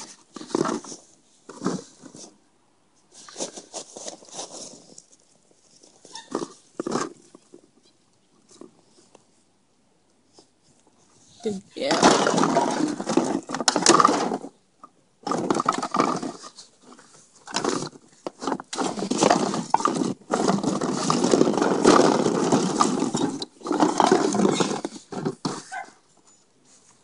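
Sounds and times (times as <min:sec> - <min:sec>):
plastic bottles and cans clattering: 0:00.0 - 0:02.2, 0:06.1 - 0:07.6, 0:11.8 - 0:14.6, 0:15.2 - 0:26.0.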